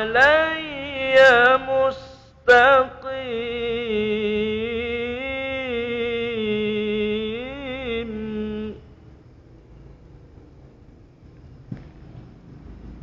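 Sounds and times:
man chanting recitation: 0.0 - 8.9.

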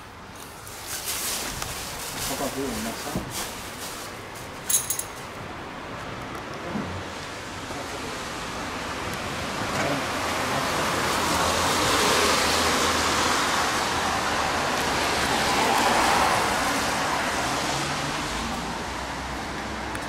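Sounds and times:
passing vehicles rushing: 6.8 - 20.0.

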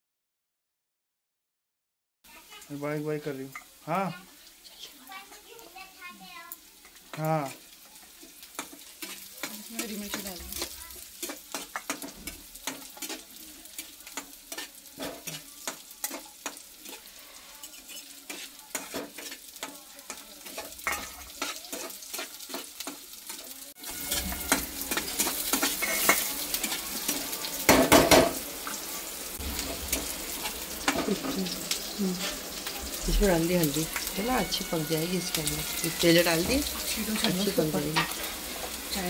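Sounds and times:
onions sizzling in oil: 2.2 - 39.0
metal spatula scraping pan: 8.1 - 39.0.

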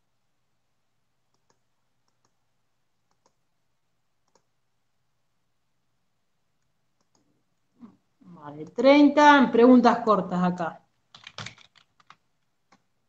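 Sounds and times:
mouse and keyboard clicks: 1.3 - 2.4, 3.1 - 3.4, 4.2 - 4.5, 7.0 - 7.3.

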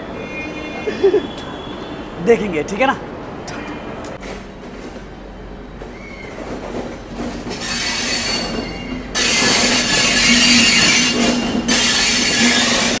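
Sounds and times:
locomotive humming: 3.0 - 13.0
wheels squealing on rails: 5.3 - 13.0.

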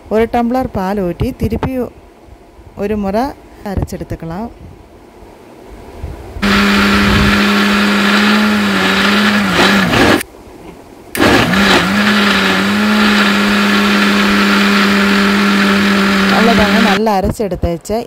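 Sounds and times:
mixer grinder motor humming: 6.4 - 10.2, 11.2 - 17.0.

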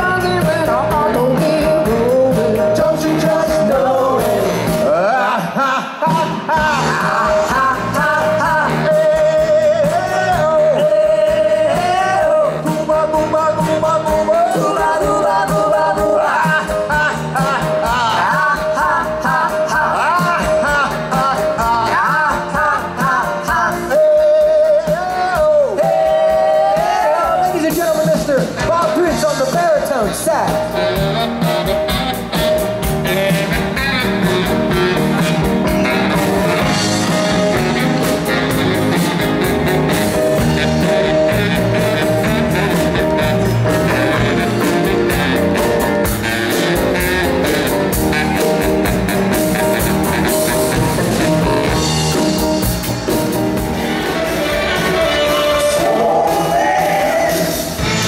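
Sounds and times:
electric bass: 0.0 - 5.1, 6.2 - 24.7, 25.3 - 58.0
lead vocals: 0.0 - 30.7, 34.1 - 58.0
drum kit: 0.0 - 58.0
baritone saxophone: 28.7 - 58.0.

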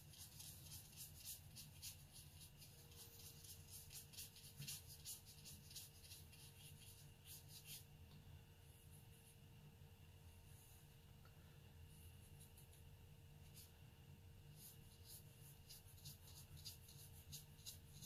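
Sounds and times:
brush strokes on paper: 0.0 - 7.9, 13.4 - 13.8, 14.4 - 18.0.

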